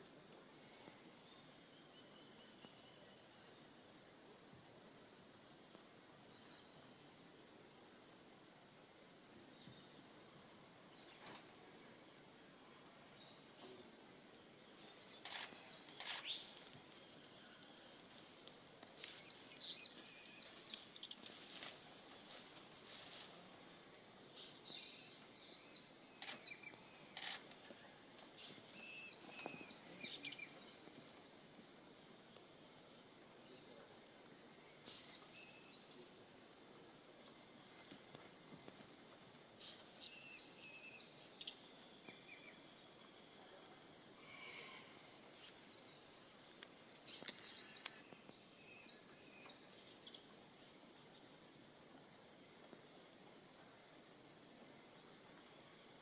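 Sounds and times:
soft rustles: 15.2 - 19.4, 20.0 - 24.0.

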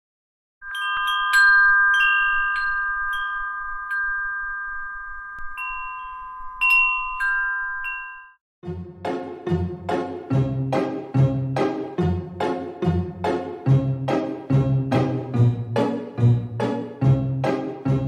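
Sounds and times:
chimes ringing: 0.6 - 8.4
music: 8.6 - 18.0.

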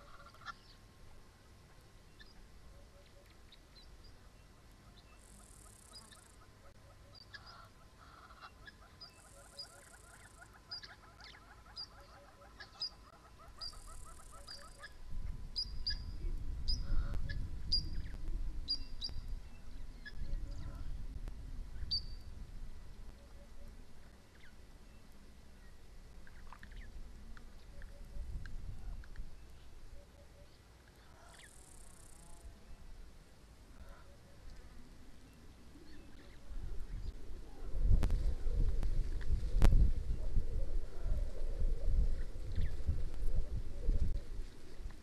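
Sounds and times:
small birds chirping: 1.7 - 15.0, 15.6 - 21.0
wind rumble on microphone: 13.5 - 30.0, 33.8 - 45.0.

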